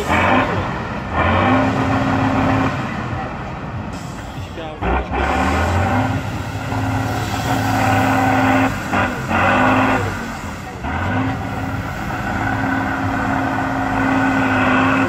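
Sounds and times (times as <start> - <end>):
diesel truck engine revving: 0.0 - 15.0.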